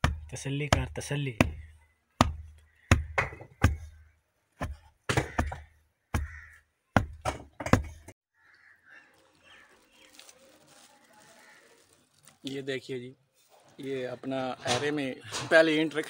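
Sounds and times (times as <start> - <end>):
hand rammer thudding on earth: 7.0 - 8.1
faint background noise: 8.5 - 16.0.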